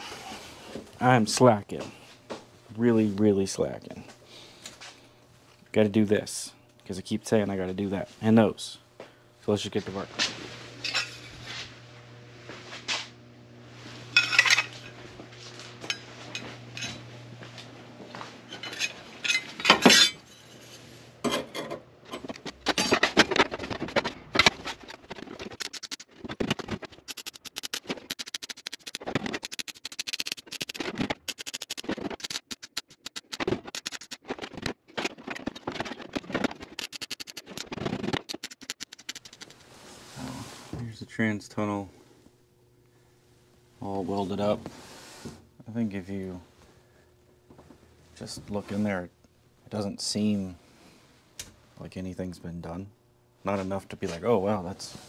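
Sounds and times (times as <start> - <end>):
rapid crackling in short bursts: 24.8 - 39.7.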